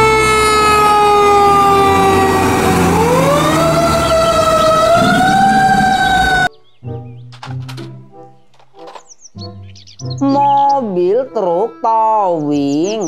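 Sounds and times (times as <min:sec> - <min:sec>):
fire engine siren wailing: 0:00.0 - 0:06.5.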